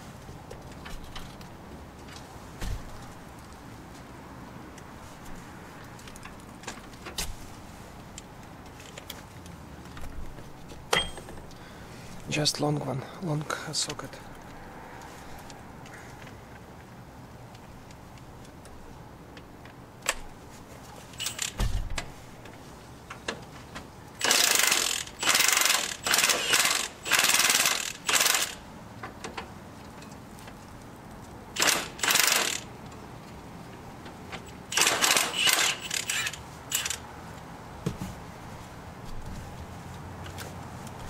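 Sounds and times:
tools clinking on metal: 10.9 - 11.5
ratchet wrench clicking: 21.2 - 21.6, 24.2 - 28.6, 31.6 - 32.7, 34.5 - 37.0.

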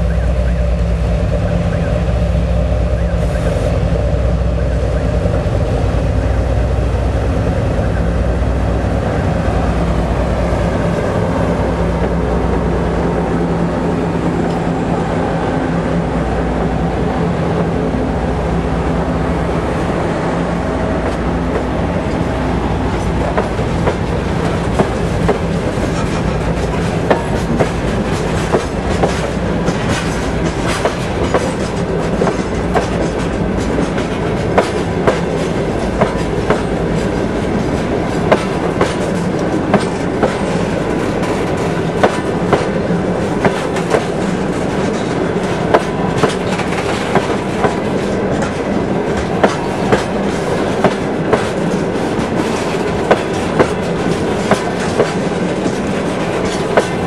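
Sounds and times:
train wheels rumbling on rail: 0.0 - 57.0
clickety-clack of rail joints: 7.1 - 15.0, 20.7 - 57.0.

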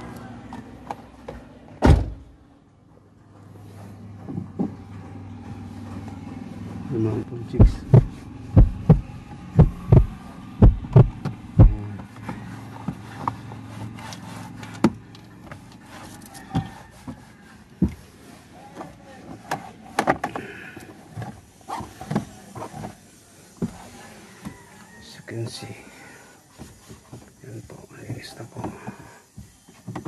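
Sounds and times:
cloth rubbing on plastic dashboard: 5.6 - 20.2, 20.9 - 30.0
low hum: 6.2 - 12.0
loud low thumps: 7.6 - 11.9.

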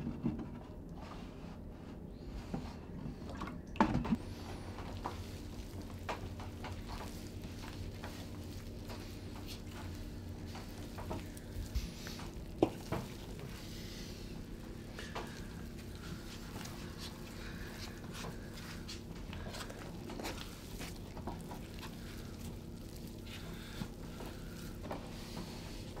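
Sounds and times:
steady low hum: 0.0 - 26.0
wet dough squelching and slapping: 3.2 - 26.0.

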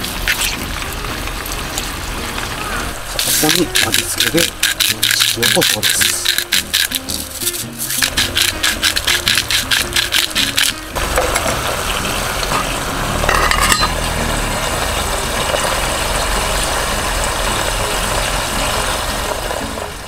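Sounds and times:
seasoning being ground: 0.0 - 1.0, 2.0 - 16.7
oil sizzling in a tin: 0.0 - 19.8
metal lid clattering: 10.0 - 11.6, 13.3 - 14.0.

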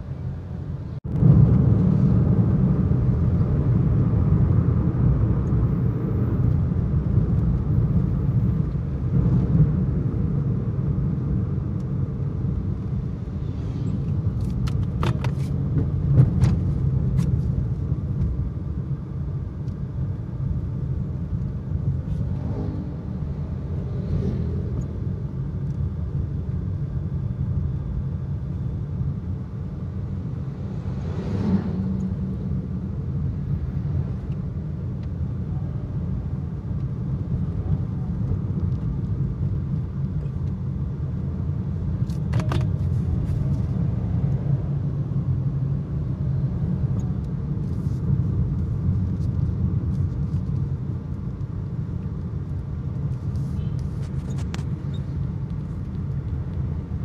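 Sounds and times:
car cabin road rumble: 0.0 - 57.0.

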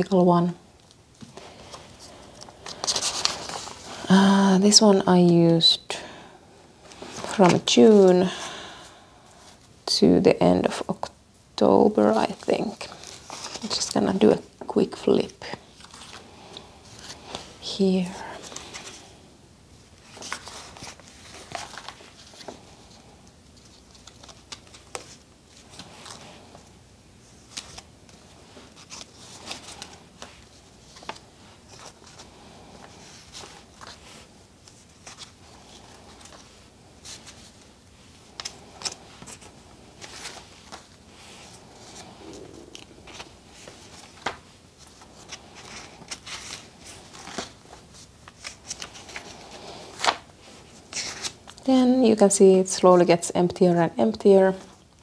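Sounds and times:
paper pages turning: 1.2 - 3.8, 12.2 - 14.0, 20.0 - 26.7, 27.3 - 51.6.

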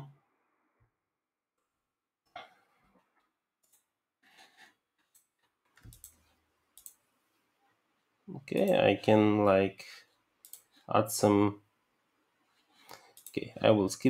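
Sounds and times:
mouse clicks: 5.2 - 6.2, 6.8 - 7.0.

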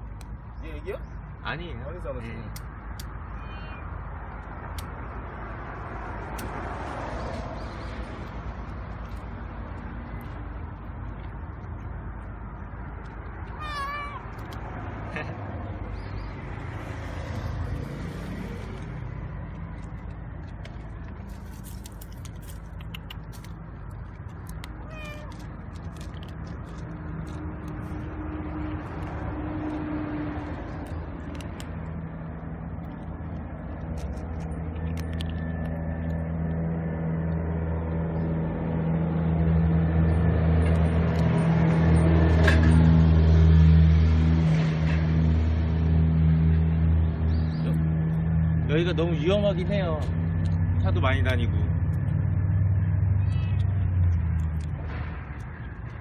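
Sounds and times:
road traffic rumble: 0.0 - 56.0
cats crunching dry kibble: 4.4 - 15.2, 16.6 - 36.8.

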